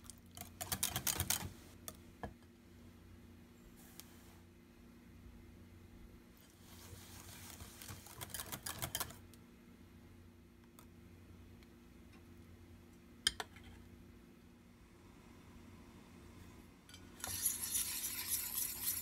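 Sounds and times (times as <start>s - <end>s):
low steady hum: 0.0s - 19.0s
wire whisk beating batter: 17.2s - 19.0s.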